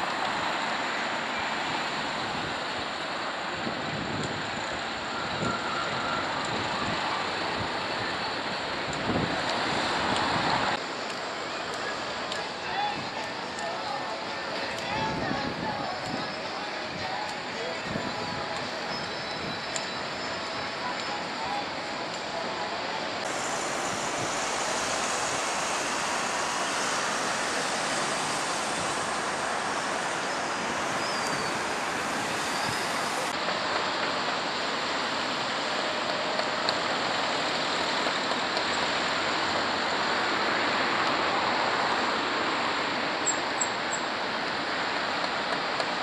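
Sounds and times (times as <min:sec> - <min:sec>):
steady outdoor rushing noise: 0:00.0 - 0:46.0.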